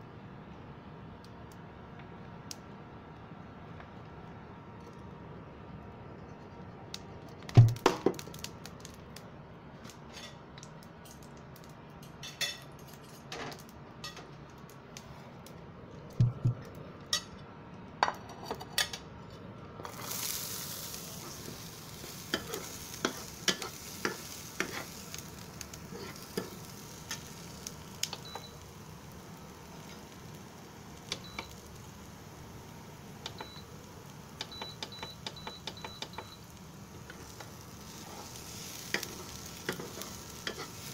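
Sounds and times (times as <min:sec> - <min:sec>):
onions sizzling in oil: 0:19.8 - 0:40.9
metal spoon scraping a pan: 0:37.2 - 0:40.9.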